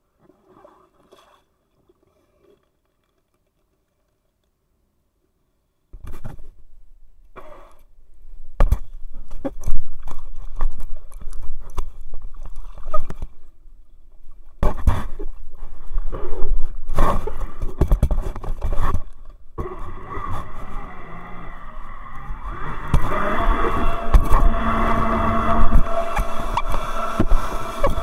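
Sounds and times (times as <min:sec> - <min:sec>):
water sloshing and splashing: 0:00.1 - 0:04.1, 0:09.2 - 0:28.0
steady pitched hum: 0:19.4 - 0:28.0.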